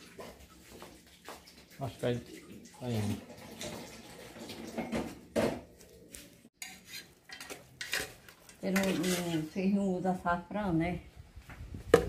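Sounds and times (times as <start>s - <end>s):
pots and utensils clattering: 0.0s - 5.8s, 6.6s - 9.6s.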